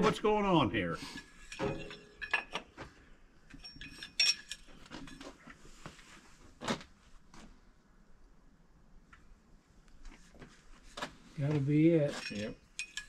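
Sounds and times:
parts being handled: 1.1s - 7.6s, 10.0s - 13.0s.

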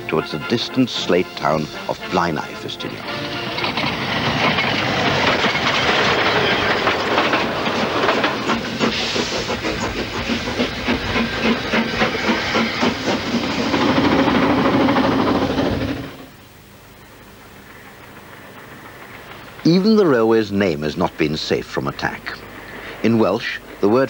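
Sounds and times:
train running noise: 0.0s - 24.0s
wheels clicking over rail joints: 2.5s - 16.2s, 17.4s - 22.4s.

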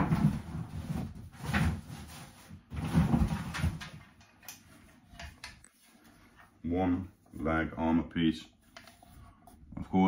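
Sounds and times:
rummaging in a cardboard box: 0.0s - 3.8s.

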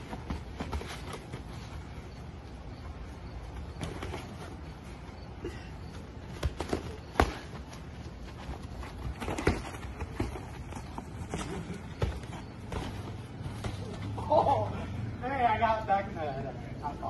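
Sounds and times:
boxing gloves punching: 6.3s - 7.8s.

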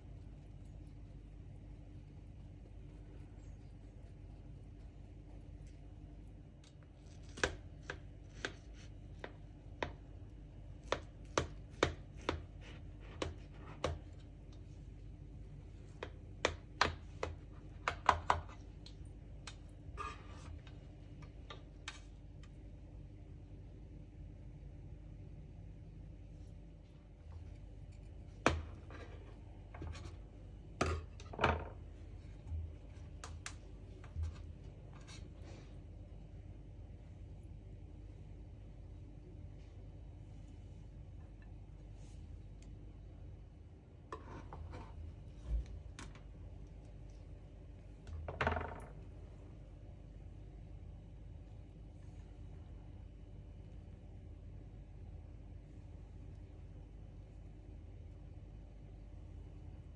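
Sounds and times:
cake server scraping baking tin: 20.0s - 20.6s.

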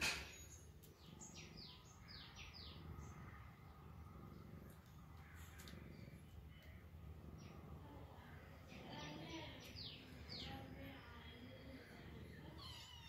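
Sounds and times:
faint bird chirps: 0.0s - 4.0s
low steady hum: 0.0s - 13.0s.

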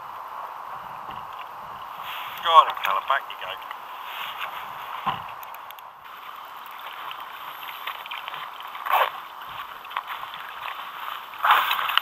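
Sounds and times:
waves lapping against kayak hull: 6.1s - 12.0s
loud splashes: 10.3s - 12.0s.

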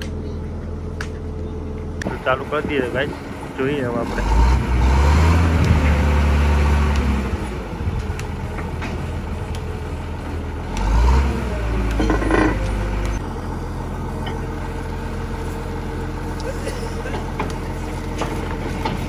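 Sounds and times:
drilling rig engine running: 0.0s - 19.0s.

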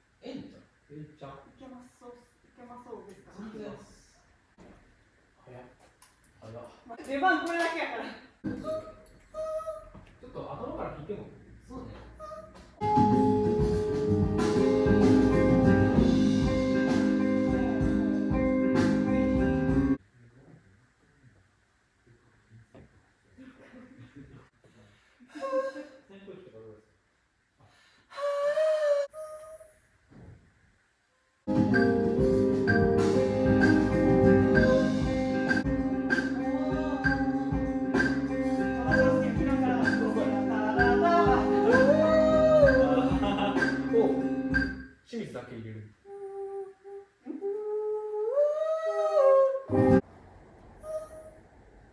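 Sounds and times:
band playing: 12.8s - 20.0s, 31.5s - 44.8s
drum hits: 31.5s - 38.3s, 38.9s - 41.9s, 42.6s - 44.8s
person singing: 33.2s - 44.3s.

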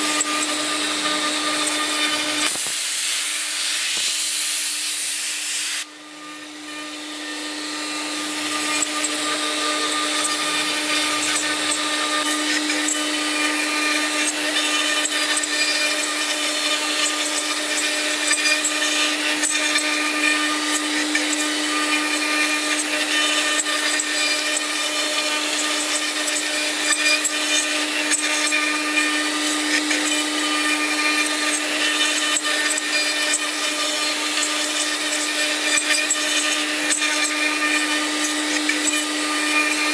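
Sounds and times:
router spindle whine: 0.0s - 39.9s.

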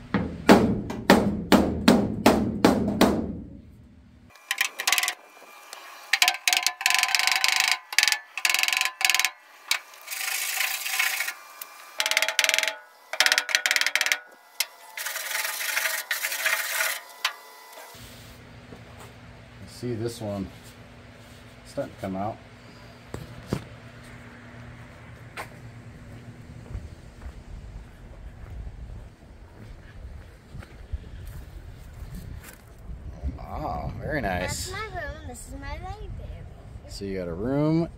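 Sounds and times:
hand sanding steel panel: 4.4s - 18.3s
steel panel ringing: 6.1s - 11.4s, 12.0s - 17.4s.

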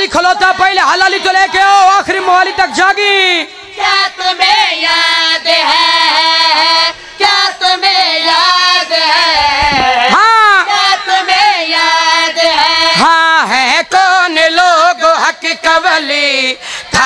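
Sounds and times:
young person singing through microphone: 3.6s - 17.0s.

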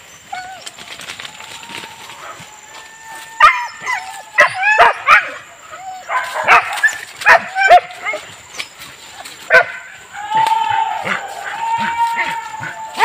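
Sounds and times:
dogs barking and yipping: 0.0s - 10.1s.

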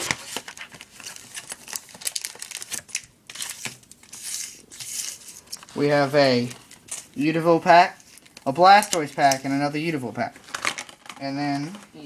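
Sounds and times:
plastic blister pack being torn open: 0.0s - 4.1s, 8.1s - 9.5s
plastic crinkling and crackling: 0.0s - 12.0s.

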